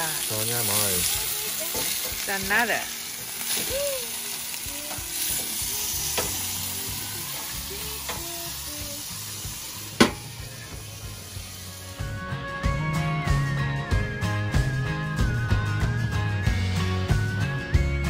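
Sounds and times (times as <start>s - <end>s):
chicken sizzling on grill: 0.0s - 17.8s
grill lid clack: 9.9s - 10.4s.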